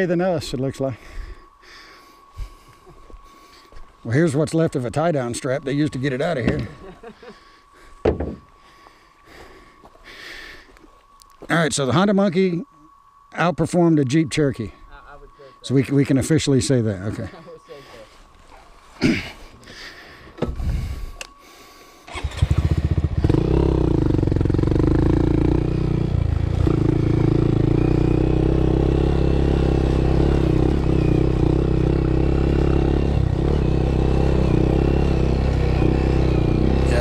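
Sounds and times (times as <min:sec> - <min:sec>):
motorcycle engine running: 0:22.1 - 0:37.0.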